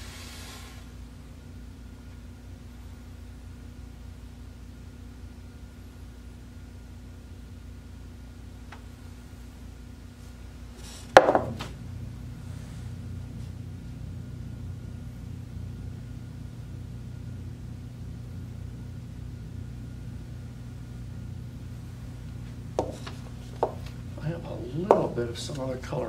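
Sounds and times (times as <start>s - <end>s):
steady low hum: 0.0s - 26.0s
sharp knock: 11.2s - 11.7s.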